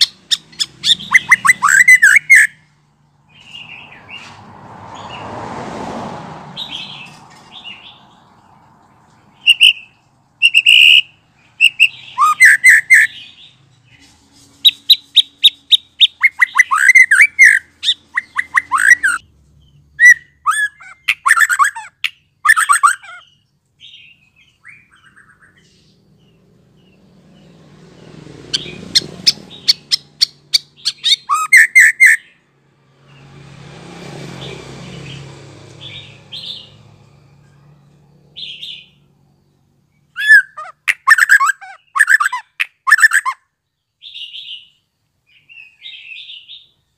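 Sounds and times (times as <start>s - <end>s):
bird singing chirps and whistles: 0.0s - 2.6s, 9.4s - 13.5s, 14.6s - 19.2s, 20.0s - 25.7s, 28.6s - 32.3s, 40.1s - 43.4s.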